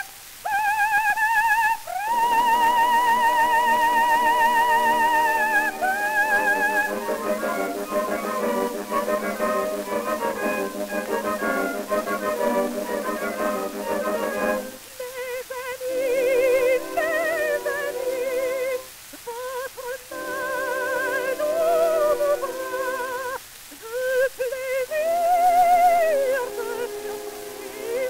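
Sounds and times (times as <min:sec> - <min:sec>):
operatic soprano singing: 0:00.0 - 0:28.0
record surface hiss: 0:00.0 - 0:28.0
orchestral accompaniment: 0:02.2 - 0:14.9, 0:16.0 - 0:18.9, 0:20.1 - 0:23.2, 0:26.1 - 0:28.0.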